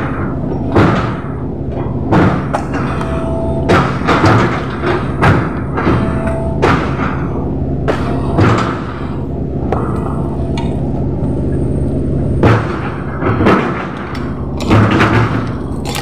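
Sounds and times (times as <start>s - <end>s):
steady low hum: 0.0s - 16.0s
jackhammer breaking concrete: 12.4s - 16.0s.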